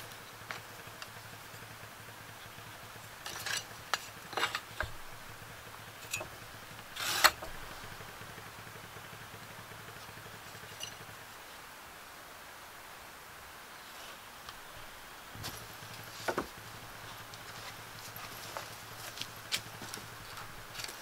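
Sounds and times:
tools tapping on wooden boards: 0:16.2 - 0:16.6.

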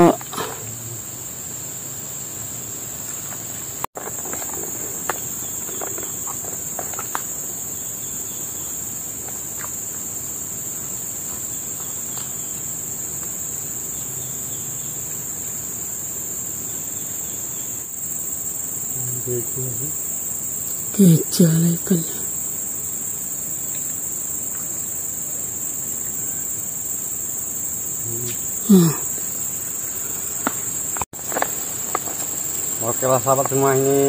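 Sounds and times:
insects chirring: 0:00.0 - 0:34.0.

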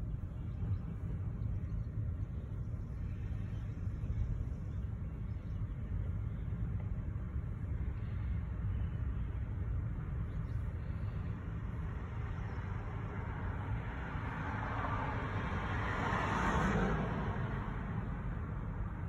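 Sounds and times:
car passing: 0:11.8 - 0:19.0.

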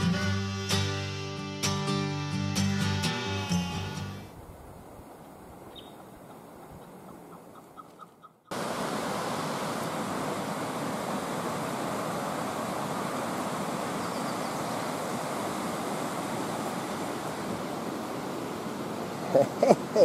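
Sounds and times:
flowing river water: 0:08.5 - 0:20.0.

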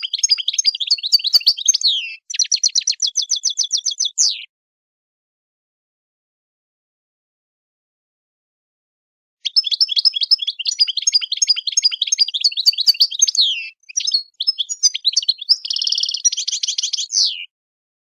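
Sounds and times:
songbird chirping and trilling: 0:00.0 - 0:04.5, 0:09.4 - 0:17.5.

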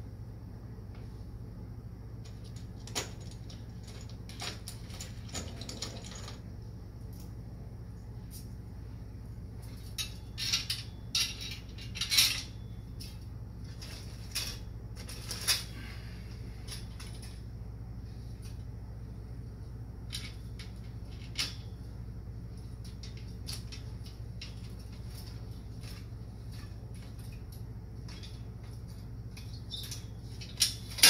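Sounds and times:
parts clinking and rattling: 0:02.2 - 0:06.5, 0:09.6 - 0:17.6, 0:20.0 - 0:21.9, 0:22.5 - 0:31.0.

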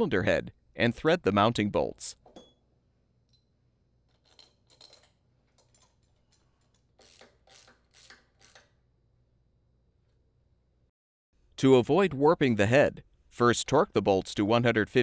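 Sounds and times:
metal bolts clicking and scraping: 0:03.2 - 0:08.6.

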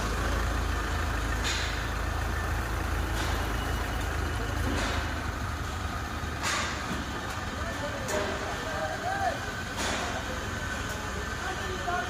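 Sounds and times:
diesel engine rumbling: 0:00.0 - 0:12.0.

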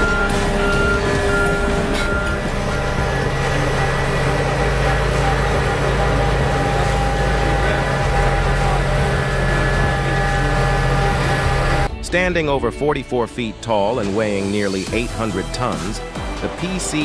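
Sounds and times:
heavy diesel machinery drone: 0:00.0 - 0:12.0.

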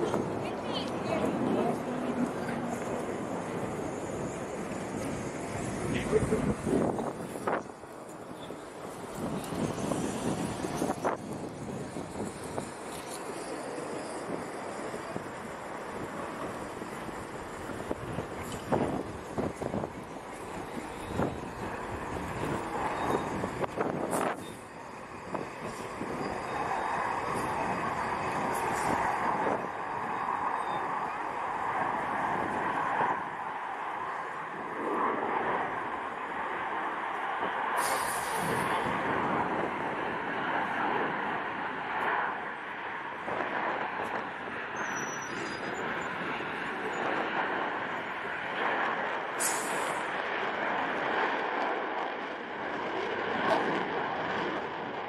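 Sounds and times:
jet engine rush: 0:00.0 - 0:55.0.

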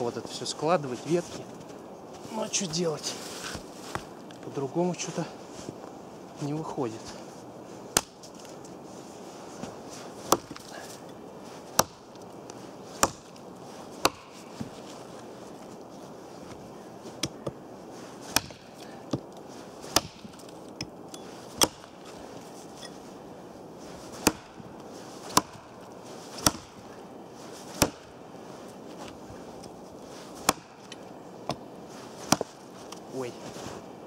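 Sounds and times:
hatchet chopping branch: 0:07.9 - 0:08.5, 0:10.1 - 0:14.8, 0:17.2 - 0:17.6, 0:18.2 - 0:22.2, 0:24.1 - 0:26.9, 0:27.7 - 0:28.2, 0:29.6 - 0:33.0.

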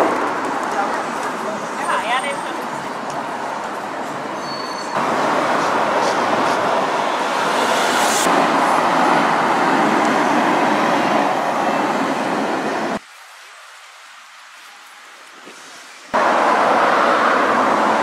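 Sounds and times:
traffic passing close: 0:00.0 - 0:13.0, 0:16.1 - 0:18.0.

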